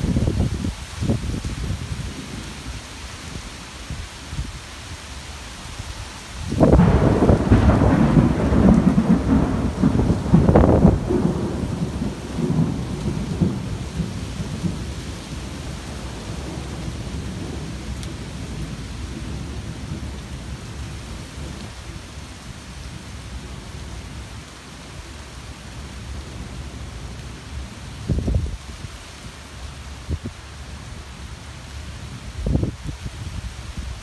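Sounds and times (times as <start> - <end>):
steady rain: 0.0 - 34.0
roll of thunder: 6.6 - 15.1.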